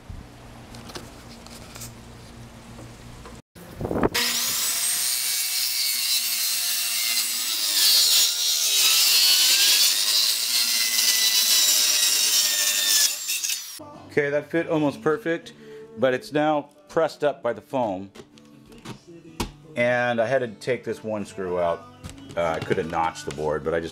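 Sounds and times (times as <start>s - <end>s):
power saw cutting board: 4.1s - 13.8s.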